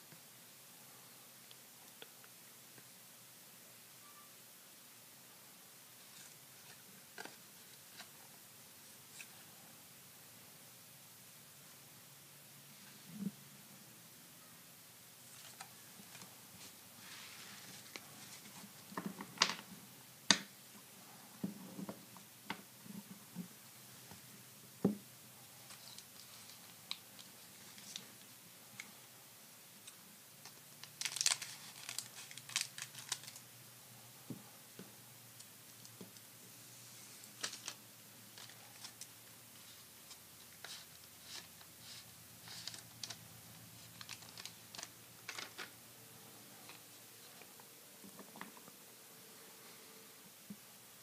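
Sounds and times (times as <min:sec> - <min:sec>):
cards clicking and rustling: 0:30.8 - 0:33.4, 0:43.8 - 0:45.7
foil wrapper tearing: 0:31.0 - 0:33.4.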